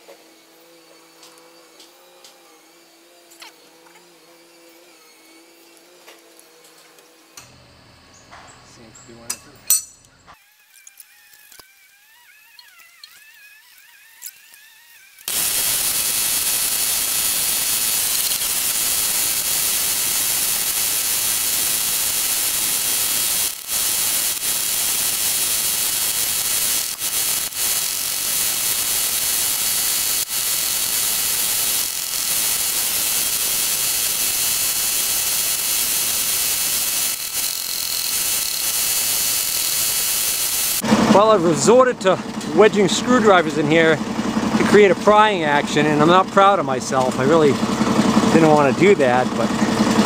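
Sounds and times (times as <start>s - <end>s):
loud steady hiss: 15.3s - 41.5s.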